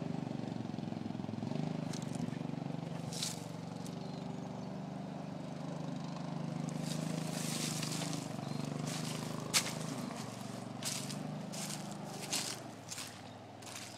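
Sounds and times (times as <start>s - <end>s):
distant atv engine running: 0.0s - 13.9s
brush rustling: 2.9s - 3.6s, 6.6s - 13.9s.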